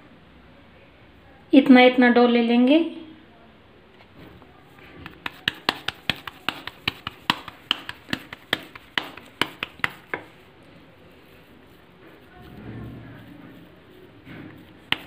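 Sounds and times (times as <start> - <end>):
hands patting dough: 4.7 - 12.6, 13.2 - 15.0.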